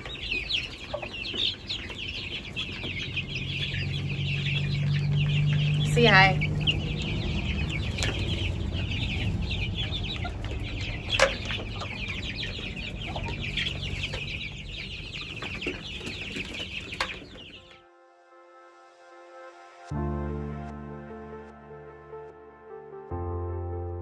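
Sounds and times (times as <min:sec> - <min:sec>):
chicks peeping: 0:00.0 - 0:17.8
low rumble: 0:01.2 - 0:17.0.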